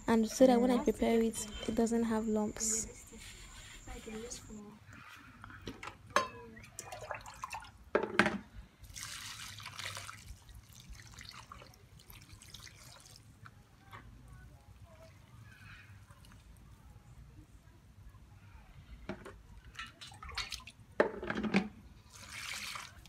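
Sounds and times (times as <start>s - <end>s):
water pouring into basin: 8.8s - 13.5s, 22.0s - 23.0s.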